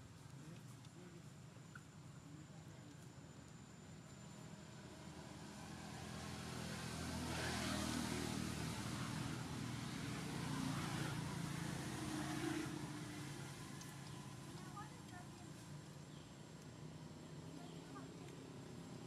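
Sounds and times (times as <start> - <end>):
vehicle engine passing: 5.0 - 15.0.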